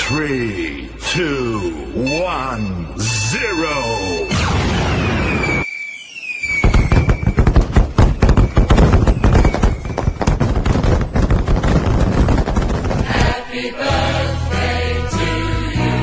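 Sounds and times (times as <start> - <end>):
firework whistle sliding down: 4.3 - 10.1
fireworks crackling and popping: 5.9 - 13.5.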